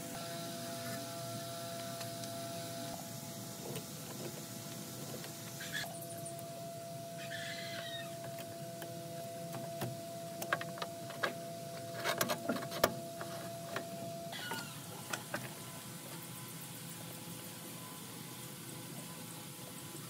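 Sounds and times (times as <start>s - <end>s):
faint steady hum: 0.0s - 20.0s
birds calling: 5.5s - 6.4s, 7.2s - 8.2s.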